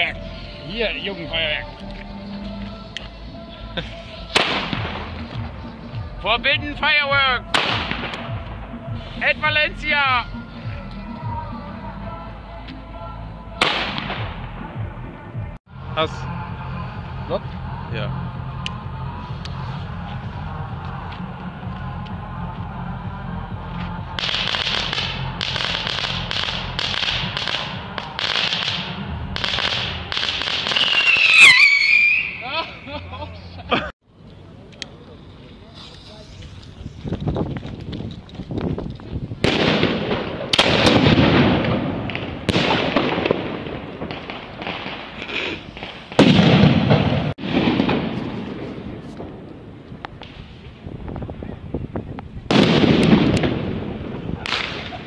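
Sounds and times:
firecrackers exploding with echo: 4.2s - 5.6s, 7.5s - 9.2s, 13.6s - 14.8s, 24.1s - 32.4s, 39.4s - 50.7s, 52.5s - 55.0s.

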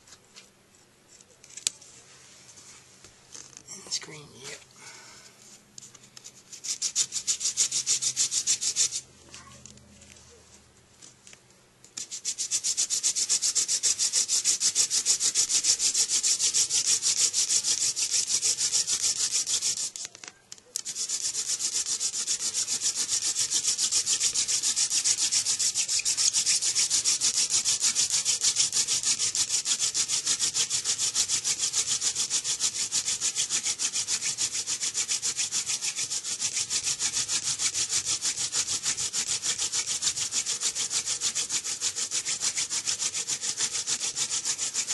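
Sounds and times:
hand drill friction grinding: 12.4s - 20.0s, 20.8s - 44.9s.

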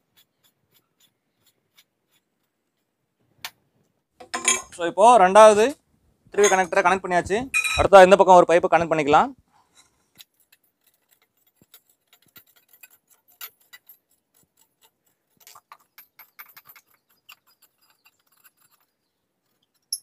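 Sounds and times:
metal pipe threads clicking: 9.8s - 20.0s.

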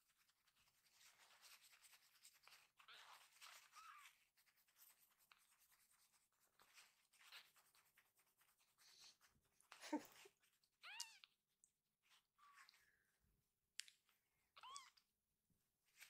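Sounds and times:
tissue rubbing fur: 0.1s - 8.8s
kitten squeaking: 2.8s - 4.2s, 10.8s - 11.3s, 14.6s - 15.0s.

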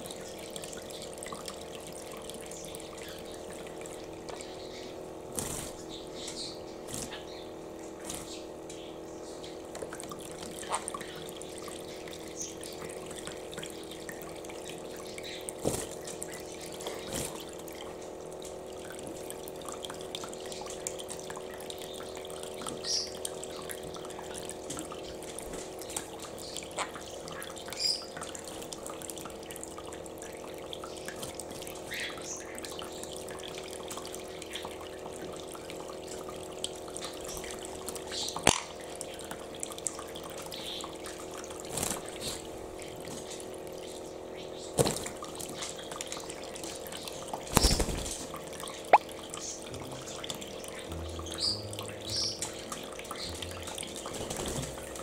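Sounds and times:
small pump humming: 0.0s - 55.0s
water stream pouring into basin: 0.0s - 55.0s
bird splashing in water: 47.2s - 49.4s.

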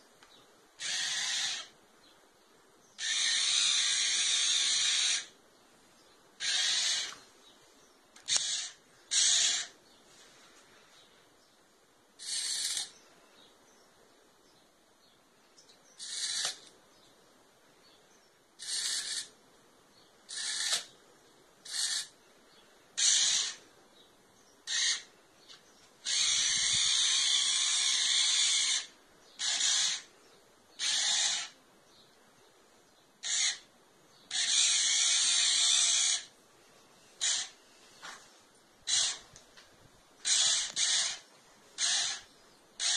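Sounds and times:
toy tank motors whirring: 12.2s - 12.9s, 16.0s - 16.7s, 18.6s - 19.3s, 20.3s - 20.9s, 21.6s - 22.1s.

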